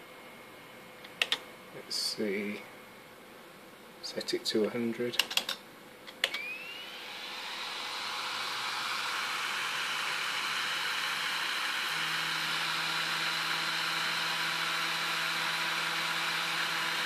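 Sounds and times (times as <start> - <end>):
disc drive whirring: 6.2 - 17.0.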